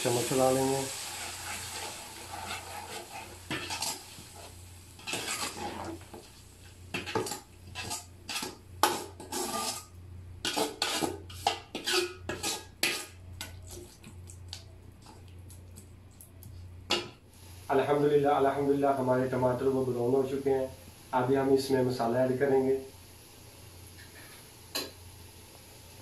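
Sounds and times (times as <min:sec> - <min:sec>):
steel ladle scraping metal pot: 0:01.0 - 0:06.0, 0:07.0 - 0:13.2.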